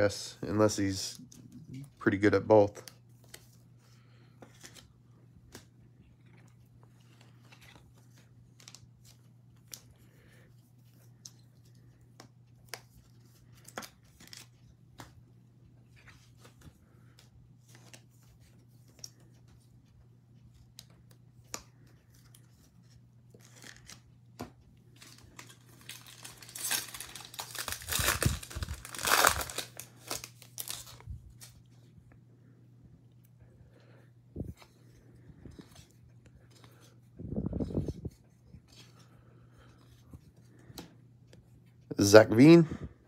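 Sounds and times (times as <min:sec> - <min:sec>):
wrapper tearing and crinkling: 0:25.0 - 0:31.6.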